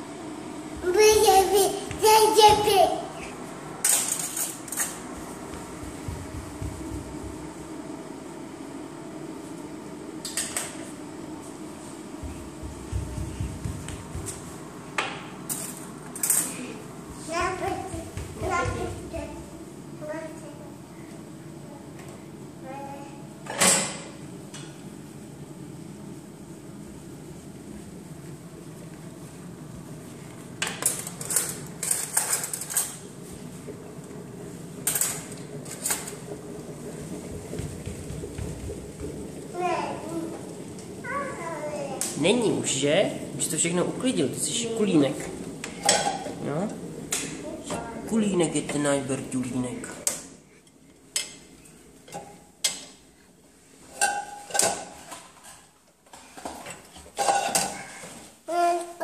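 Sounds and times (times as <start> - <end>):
dishes clinking in dishwasher rack: 53.9 - 55.2, 57.2 - 57.9.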